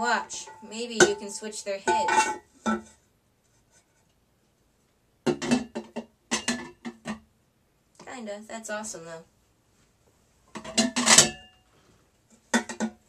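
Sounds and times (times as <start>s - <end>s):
ceramic lids clinking and scraping: 0.1s - 2.9s, 5.3s - 7.2s, 10.6s - 11.5s.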